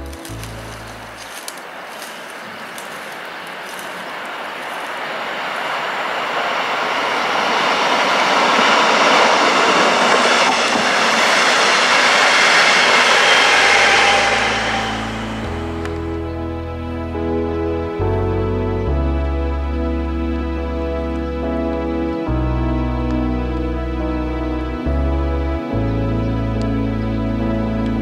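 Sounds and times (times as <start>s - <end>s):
train wheel and rail noise: 0.0s - 16.2s.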